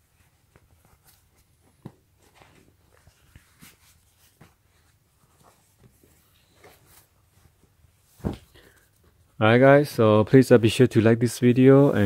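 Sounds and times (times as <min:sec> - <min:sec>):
fabric rustling: 0:00.0 - 0:09.4.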